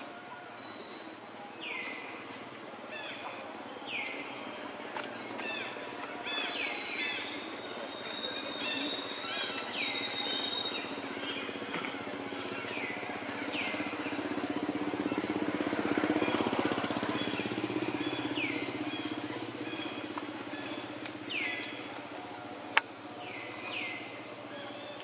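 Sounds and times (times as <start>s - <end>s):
passing motor vehicle hum: 0.0s - 22.9s
bird high falling calls: 5.4s - 14.4s, 22.7s - 25.0s.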